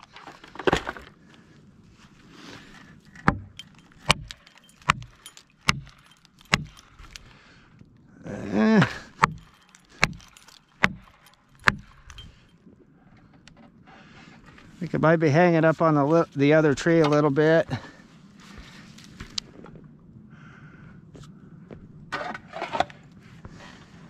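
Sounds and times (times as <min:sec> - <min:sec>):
axe striking a wedge: 0:03.2 - 0:06.8, 0:09.2 - 0:12.2.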